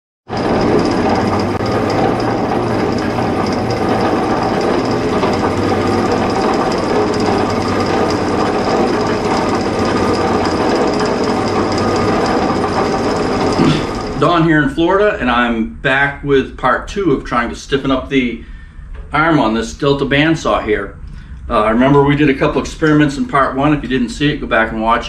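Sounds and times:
band saw running: 0.3 - 15.1.

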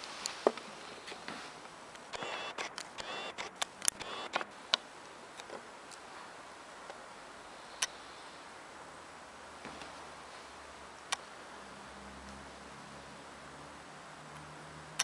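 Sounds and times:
faint room hiss: 0.0 - 15.0
small sharp clicks: 1.9 - 6.0, 11.0 - 11.3.

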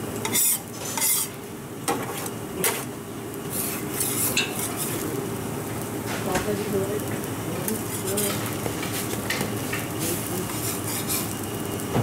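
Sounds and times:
metal spatula scraping griddle: 0.2 - 2.9, 3.5 - 5.0, 7.8 - 9.1, 10.0 - 11.4.

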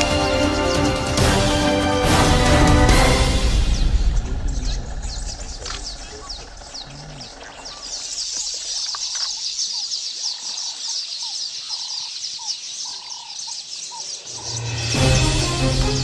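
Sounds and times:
birds chirping: 0.0 - 16.0
low whistled bird notes: 3.0 - 9.7.

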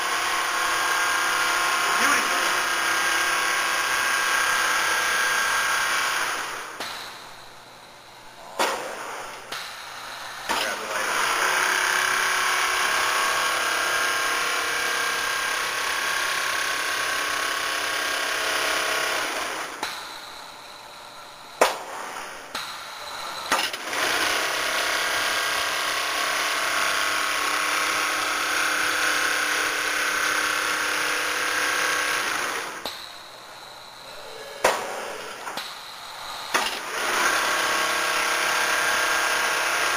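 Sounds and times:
quilting machine stitching: 36.6 - 39.9.

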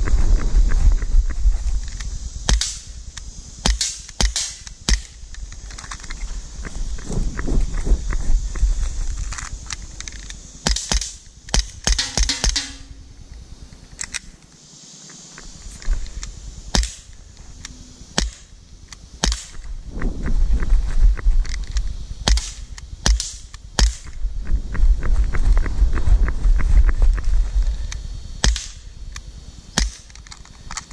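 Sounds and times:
air pistol shots: 2.5 - 2.9, 3.6 - 5.2, 10.6 - 13.1, 16.7 - 17.2, 18.1 - 18.6, 19.2 - 19.7, 22.2 - 24.2, 28.4 - 28.9, 29.8 - 30.2.

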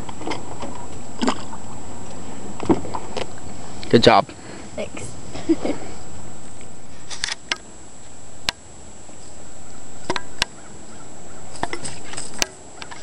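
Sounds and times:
faint high whine: 0.0 - 13.0
steady hiss: 0.0 - 13.0
sharp clicks and knocks: 11.6 - 13.0.

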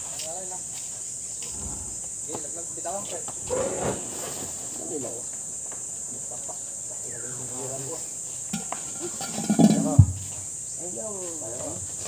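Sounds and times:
high insect drone: 0.0 - 12.0
heavy pot thud: 8.5 - 10.2.

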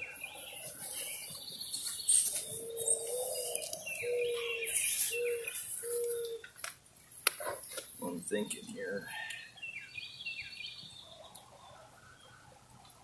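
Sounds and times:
small birds chirping: 0.0 - 13.0
dove cooing: 2.2 - 6.4.

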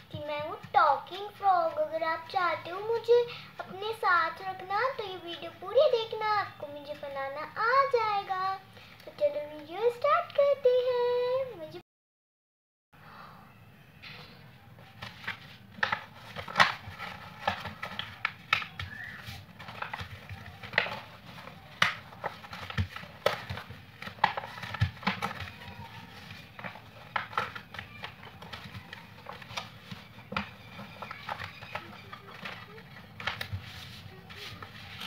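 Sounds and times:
paper folding crinkles: 14.7 - 35.0.

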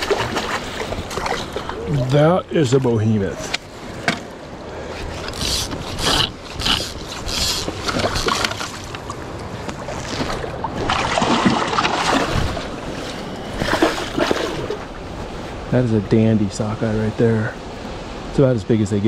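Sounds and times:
fish splashing in shallow water: 0.0 - 2.2, 5.2 - 15.1.

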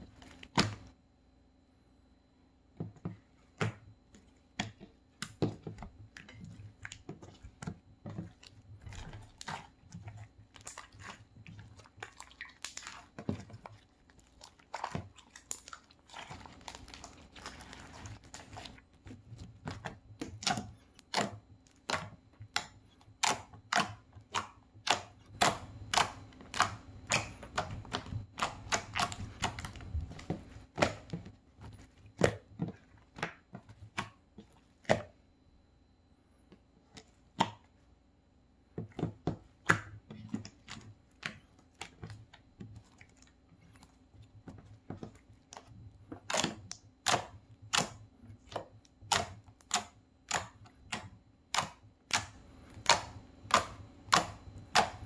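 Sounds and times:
slime clicking and popping: 49.0 - 55.0.

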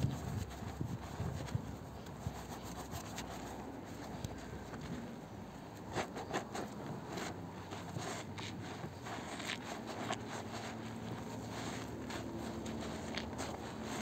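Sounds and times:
soapy sponge squelching: 6.0 - 14.0.

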